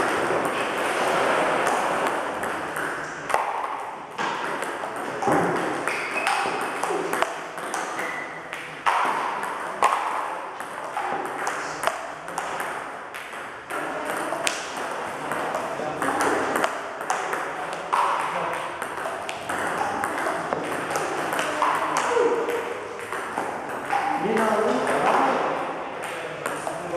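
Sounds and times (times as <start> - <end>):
table tennis ball clicks: 1.6 - 25.2.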